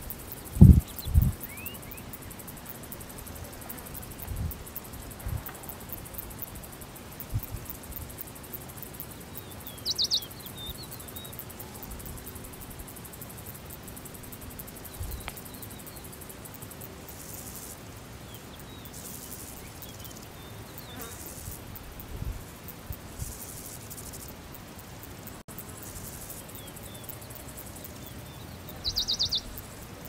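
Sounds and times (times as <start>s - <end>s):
insect chirring: 0.0s - 30.0s
small birds chirping: 0.6s - 2.4s, 9.3s - 11.5s, 26.4s - 29.9s.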